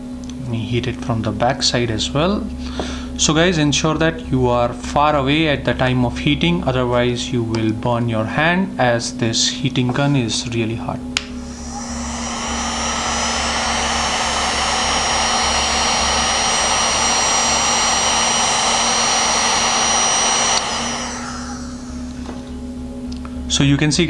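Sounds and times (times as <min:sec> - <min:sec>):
heat gun fan whining: 0:11.1 - 0:23.5.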